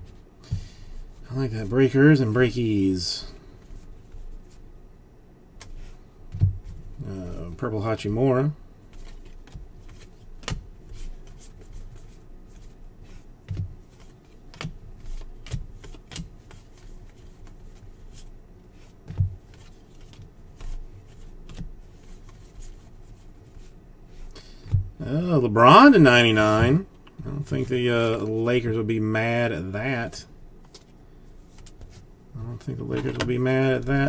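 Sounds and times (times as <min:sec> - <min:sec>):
trading cards clicking and sliding: 0:08.9 - 0:24.7, 0:30.6 - 0:33.9.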